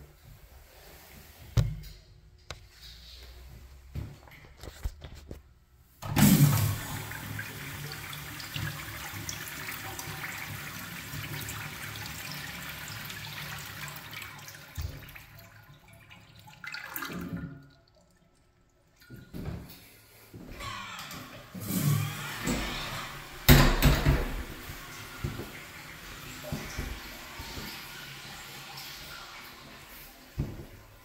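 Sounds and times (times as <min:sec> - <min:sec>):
urinal flushing: 0:06.0 - 0:31.0.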